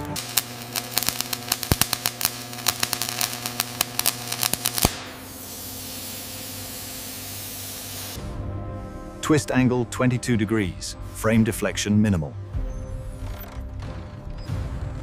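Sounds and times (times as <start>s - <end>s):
welding arc crackling: 0.0s - 8.2s
steady hiss: 0.2s - 8.2s.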